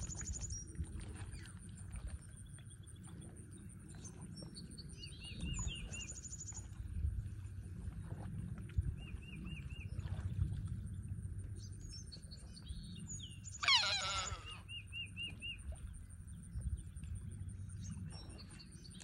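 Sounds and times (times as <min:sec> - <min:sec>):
low rumble: 0:06.5 - 0:13.6.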